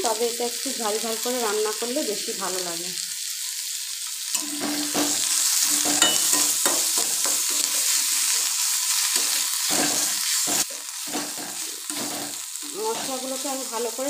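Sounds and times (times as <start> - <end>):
paste sizzling in oil: 0.0 - 14.0
metal spatula scraping pan: 4.3 - 13.4.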